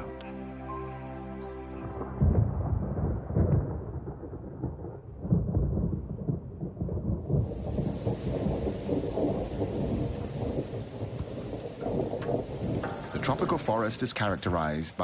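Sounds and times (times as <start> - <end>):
thunder rumbling: 1.8 - 15.0
heavy rain hissing: 7.3 - 15.0.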